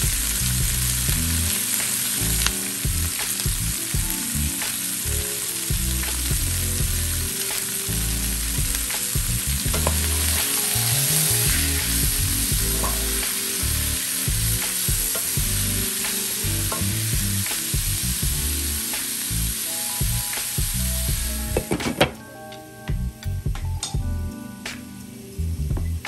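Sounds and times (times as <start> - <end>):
vegetables sizzling in skillet: 0.0 - 21.6.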